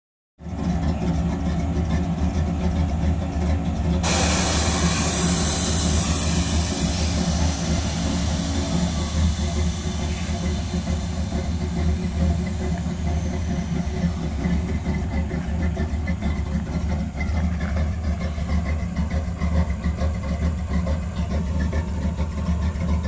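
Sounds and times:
truck engine idling: 0.4s - 23.0s
hiss of escaping air: 4.0s - 14.9s.

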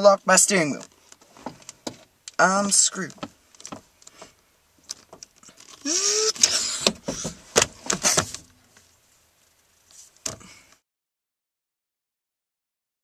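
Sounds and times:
steering lock clicks and rattles: 3.2s - 3.9s, 4.8s - 5.8s
steering wheel squeak: 5.5s - 7.4s.

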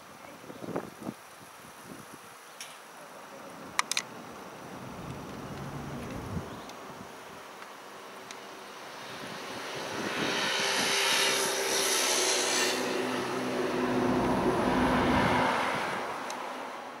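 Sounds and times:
passing engine droning: 4.1s - 7.0s, 7.8s - 17.0s.

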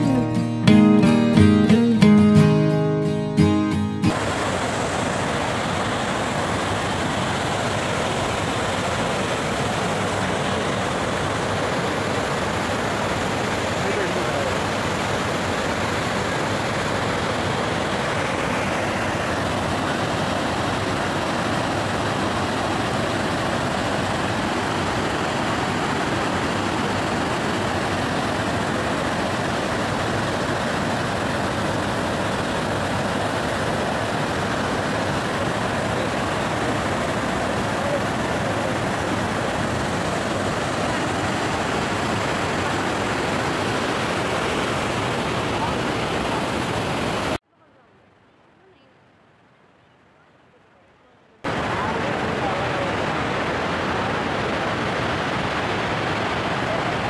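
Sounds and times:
waterfall rushing over rock: 4.0s - 47.4s, 51.4s - 57.0s.

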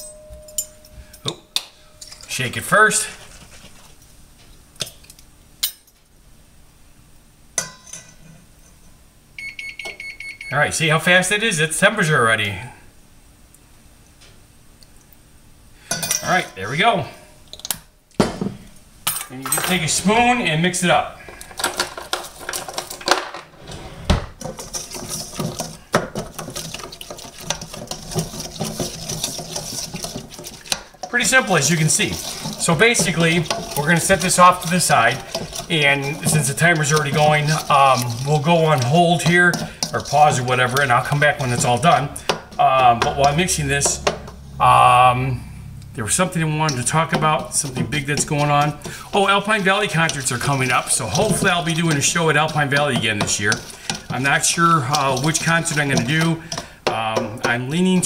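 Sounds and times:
metal clinking on steel bowl: 0.0s - 2.4s, 15.9s - 16.6s, 26.8s - 44.4s
spoon scraping metal bowl: 23.7s - 44.6s, 46.2s - 58.0s
spoon knocking bowl: 41.5s - 44.4s.

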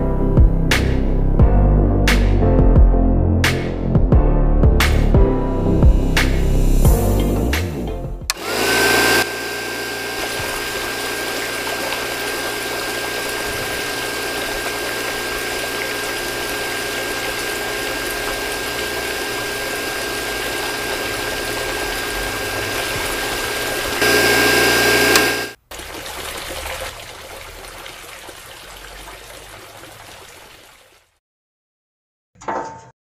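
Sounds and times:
toy water pump whining: 8.3s - 25.9s
water trickling into a tank: 10.1s - 24.0s, 25.6s - 31.2s.

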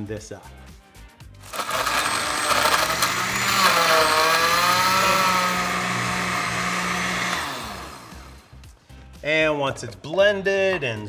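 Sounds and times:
blender crushing ice: 1.4s - 8.5s.

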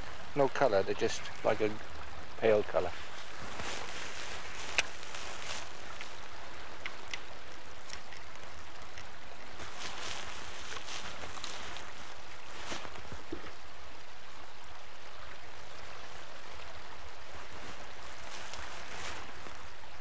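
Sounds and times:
flowing river water: 0.0s - 20.0s
faint clicks: 4.7s - 4.9s, 5.9s - 9.5s.

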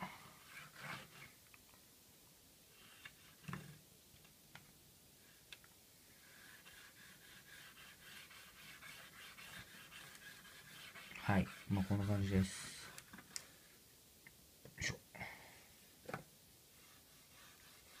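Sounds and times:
pad rubbing on rails: 6.2s - 13.1s, 16.7s - 18.0s.

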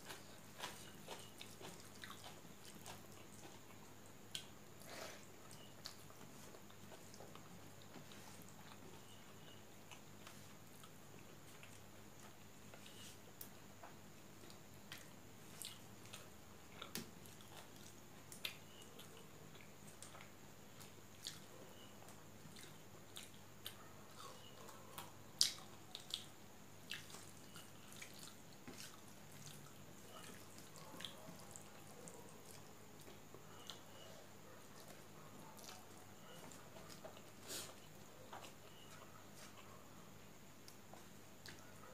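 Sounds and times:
chewing smacks: 0.0s - 4.9s, 22.5s - 34.0s.

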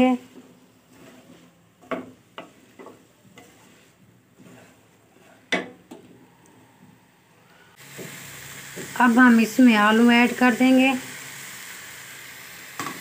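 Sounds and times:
faint sizzling: 0.0s - 13.0s
spoon clacking against pan: 1.8s - 3.6s.

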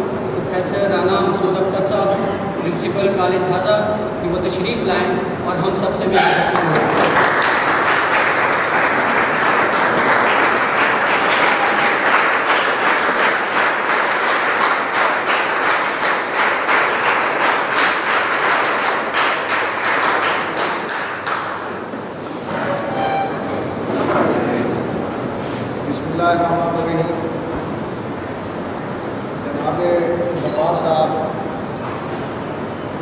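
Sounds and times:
people applauding: 6.2s - 21.9s.

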